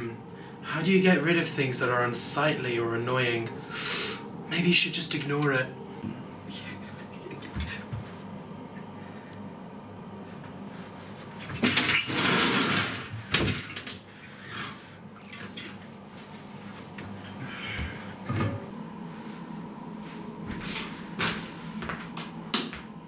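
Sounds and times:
knocks and shuffles: 17.8s - 23.0s.

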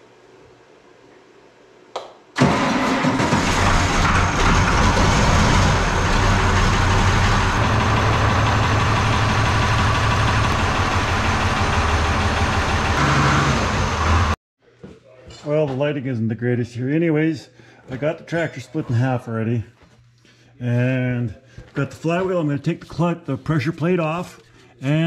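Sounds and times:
tractor diesel engine starting and idling: 2.4s - 14.4s.

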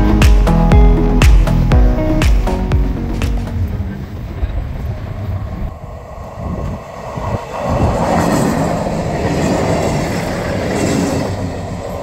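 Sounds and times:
vehicle engine rumbling: 2.6s - 10.1s.

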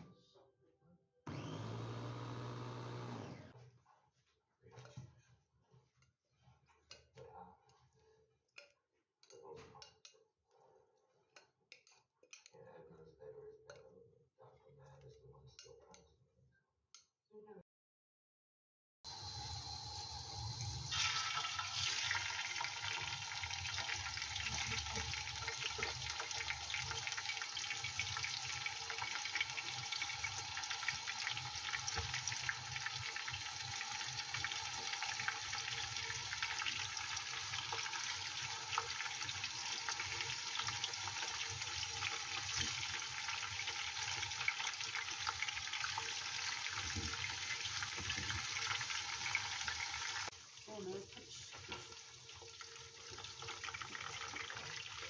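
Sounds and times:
fish sizzling in hot oil: 19.1s - 55.0s.

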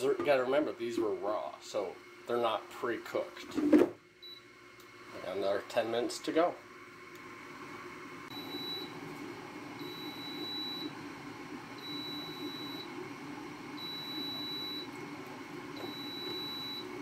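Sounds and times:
air fryer beeping: 4.2s - 4.5s, 8.3s - 11.0s, 11.7s - 13.0s, 13.7s - 15.0s, 15.7s - 17.0s.

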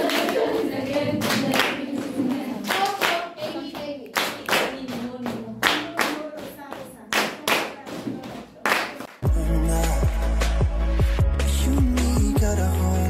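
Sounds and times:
group of people singing: 0.0s - 3.7s
rhythmic clapping: 0.0s - 12.3s.

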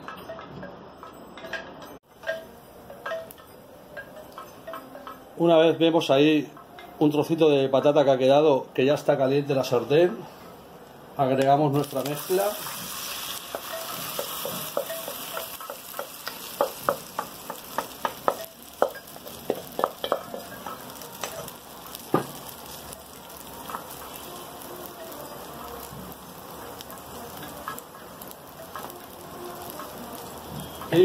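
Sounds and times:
mixture sizzling in hot oil: 11.7s - 31.0s.

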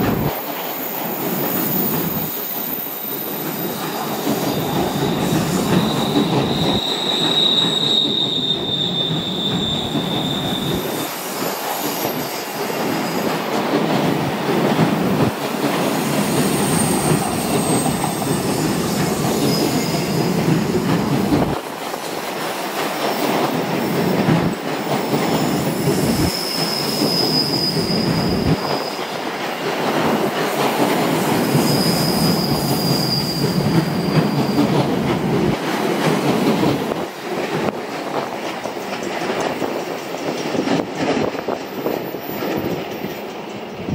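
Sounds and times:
train wheels rumbling on rail: 0.0s - 43.9s
high wheel squeal: 0.6s - 13.4s, 16.1s - 20.4s, 25.4s - 29.1s, 31.4s - 34.8s.

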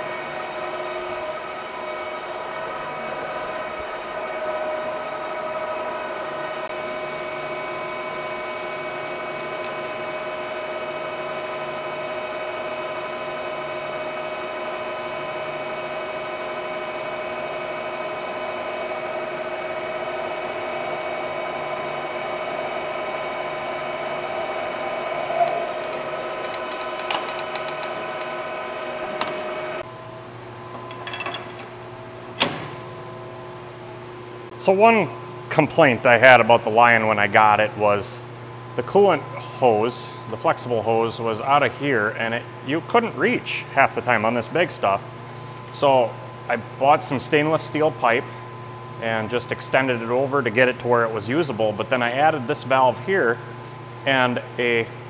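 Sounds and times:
metal lathe whining: 0.0s - 29.8s.

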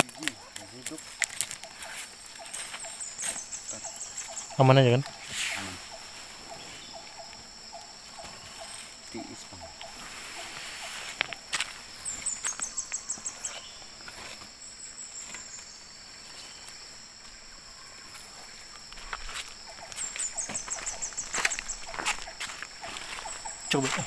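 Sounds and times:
insects droning: 0.0s - 24.0s
net clicks and rustles: 0.1s - 3.5s.

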